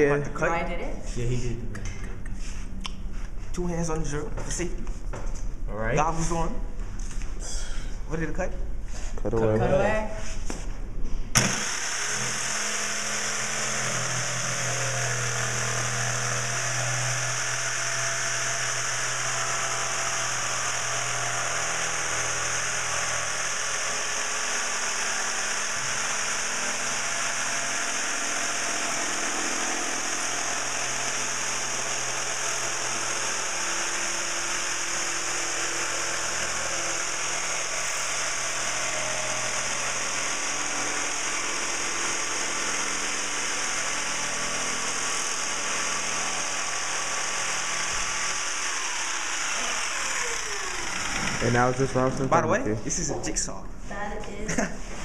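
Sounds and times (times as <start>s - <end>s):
jigsaw sawing plywood: 11.4s - 52.4s.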